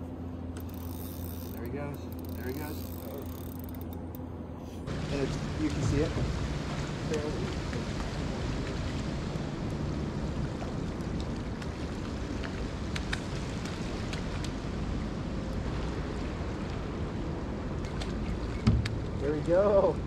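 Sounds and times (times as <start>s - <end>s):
ocean surf: 4.9s - 20.0s
wind rumbling on microphone: 4.9s - 20.0s.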